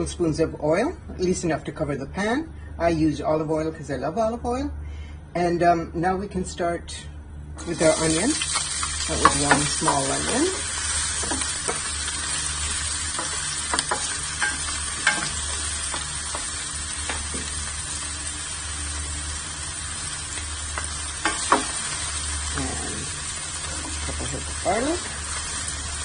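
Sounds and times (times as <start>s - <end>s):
onion sizzling in oil: 7.6s - 26.0s.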